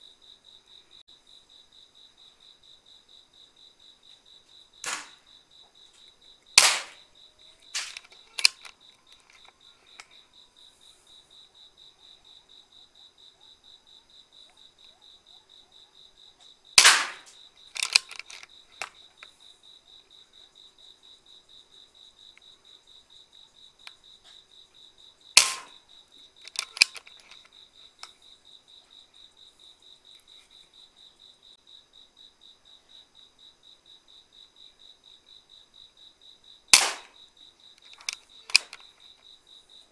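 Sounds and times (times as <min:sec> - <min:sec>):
air rifle shot crack: 0:04.8 - 0:05.2, 0:06.6 - 0:07.0, 0:07.7 - 0:08.5, 0:16.8 - 0:18.0, 0:25.4 - 0:25.8, 0:36.8 - 0:37.2
small clicks: 0:04.8 - 0:05.2, 0:06.0 - 0:07.0, 0:07.6 - 0:10.2, 0:16.8 - 0:19.4, 0:25.4 - 0:25.8, 0:26.4 - 0:28.2, 0:36.8 - 0:37.1, 0:37.8 - 0:39.2.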